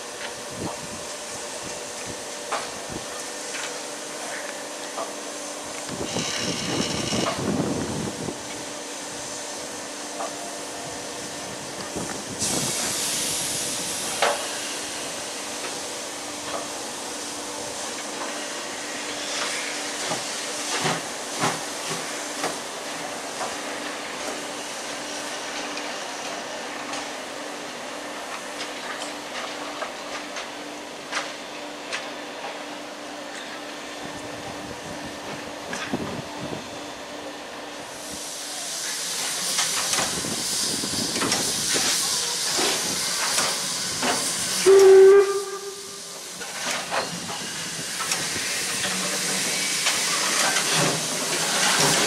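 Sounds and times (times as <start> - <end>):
steam locomotive hissing: 0.0 - 52.0
sharp high steam hiss: 4.9 - 26.5, 37.8 - 52.0.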